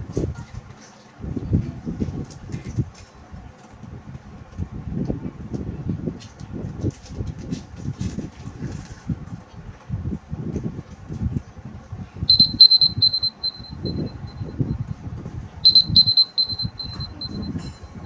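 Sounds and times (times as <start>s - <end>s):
phone timer beeping: 12.3s - 14.7s, 15.6s - 18.0s.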